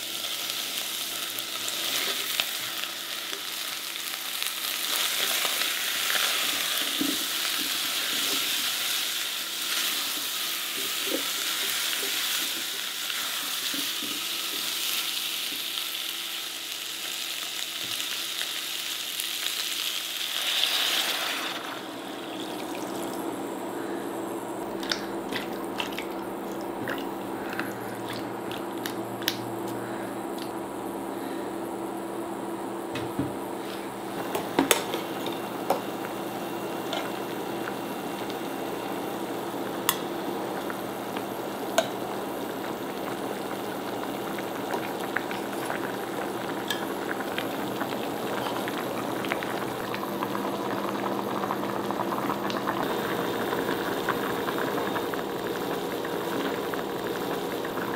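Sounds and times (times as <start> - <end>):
stew bubbling in saucepan: 0.6 - 15.8, 24.6 - 30.0, 34.1 - 57.9
faint steady hum: 21.2 - 57.9.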